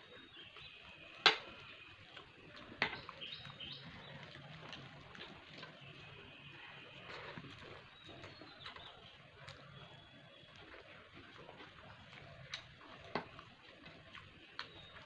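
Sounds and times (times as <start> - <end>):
high chirping calls: 2.8 - 4.4.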